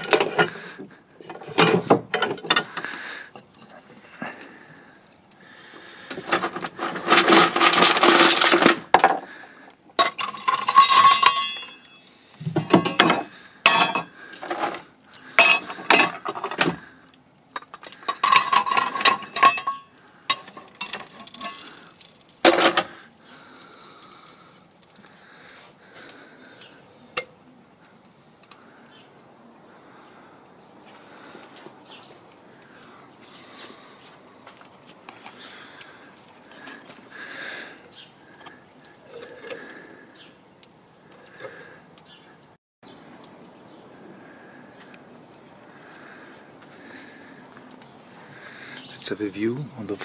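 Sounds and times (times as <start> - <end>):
coal clattering into firebox: 0.0 - 28.8, 30.9 - 41.8.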